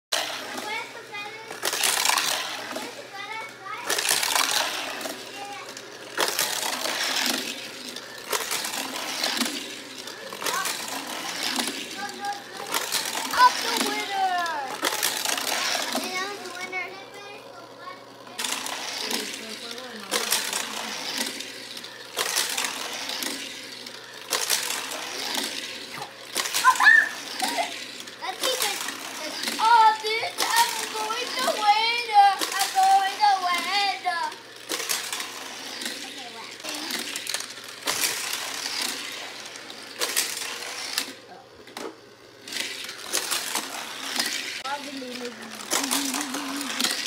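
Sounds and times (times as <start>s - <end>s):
toy cars rattling on plastic track: 0.1s - 47.0s.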